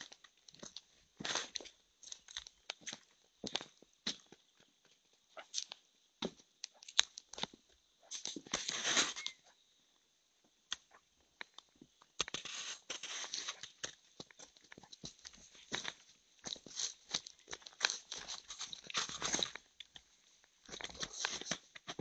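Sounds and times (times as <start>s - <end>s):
rustling and scuffing: 0.0s - 4.3s, 8.1s - 9.4s, 12.4s - 19.6s.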